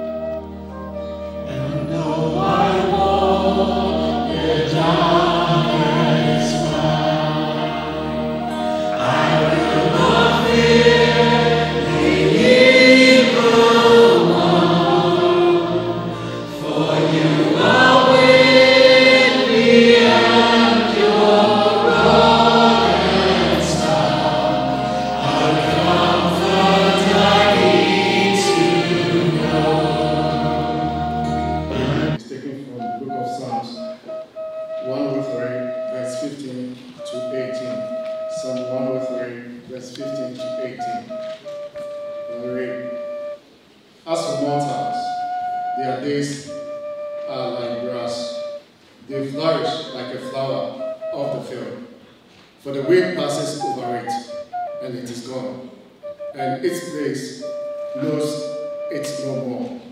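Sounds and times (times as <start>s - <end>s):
low musical accompaniment: 0.0s - 59.9s
gospel choir singing: 1.4s - 32.2s, 49.1s - 50.6s.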